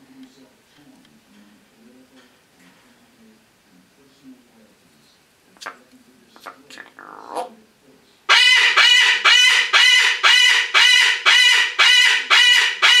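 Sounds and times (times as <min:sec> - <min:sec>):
parrot calling loudly: 0:08.3 - 0:13.0.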